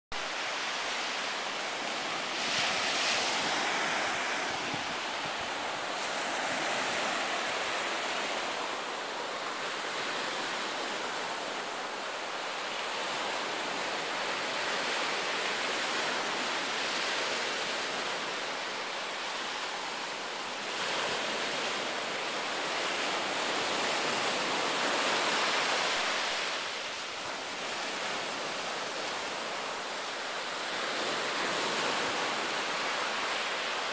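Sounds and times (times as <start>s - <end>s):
ocean surf breaking: 0.1s - 18.8s.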